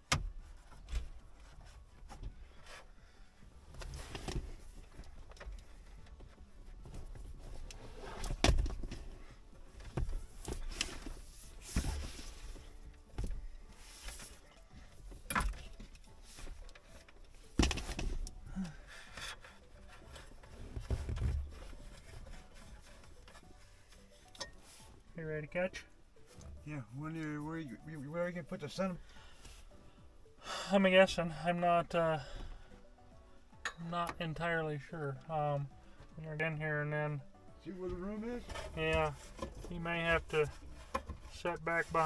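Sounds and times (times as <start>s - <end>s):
knocks and thumps: 17.6s - 18.3s.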